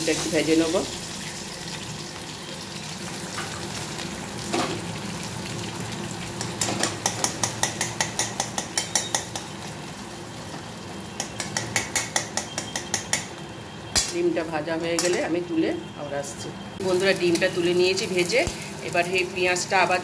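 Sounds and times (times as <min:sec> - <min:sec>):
egg frying in oil: 0:00.0 - 0:13.6.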